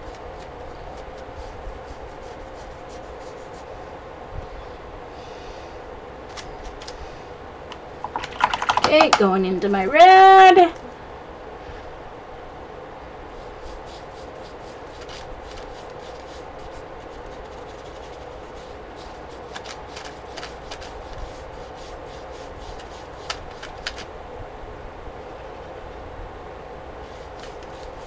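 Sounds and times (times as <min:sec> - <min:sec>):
paintbrush rubbing on paper: 0:00.0 - 0:03.8, 0:13.3 - 0:23.7, 0:27.0 - 0:28.0
steady hum: 0:00.0 - 0:28.0
sharp clicks: 0:07.7 - 0:09.3.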